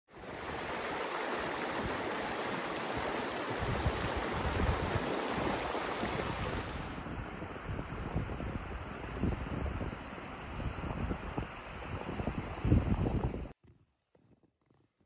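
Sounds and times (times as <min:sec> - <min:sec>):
stream rushing over rocks: 0:00.1 - 0:07.0
wind buffeting microphone: 0:00.3 - 0:13.6.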